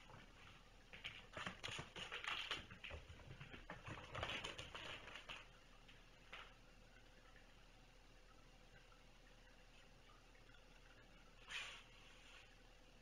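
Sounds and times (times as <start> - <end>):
kittens scratching and tapping: 0.0 - 5.6.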